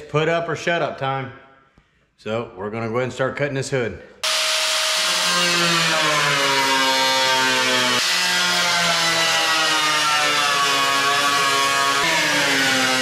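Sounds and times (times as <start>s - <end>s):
angle grinder cutting steel: 4.2s - 13.0s.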